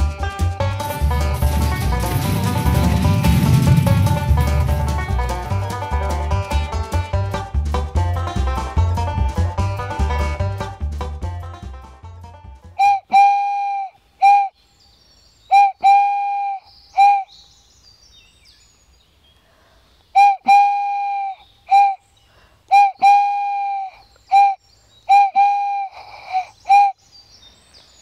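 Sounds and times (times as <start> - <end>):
whistle toots: 12.8 - 14.6, 15.5 - 17.4, 20.1 - 22.0, 22.7 - 27.0.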